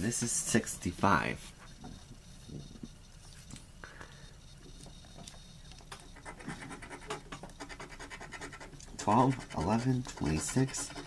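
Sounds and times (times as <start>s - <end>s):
lottery ticket being scratched: 6.1s - 11.0s.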